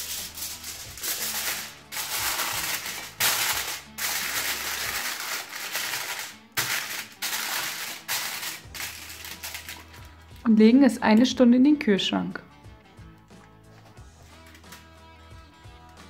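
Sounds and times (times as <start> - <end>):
aluminium foil crinkling: 0.0 - 10.0.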